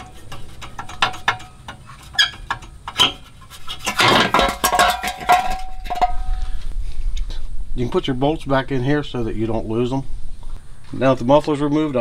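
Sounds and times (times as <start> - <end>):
metal ringing tone: 0.0 - 6.6
metal muffler clinking and scraping: 0.0 - 6.8.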